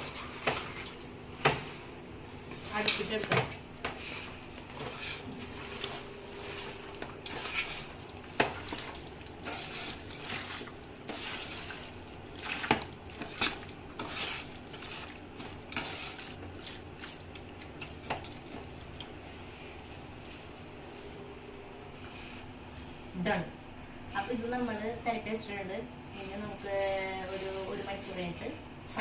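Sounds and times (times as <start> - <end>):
hand squelching meat in marinade: 4.9 - 19.1.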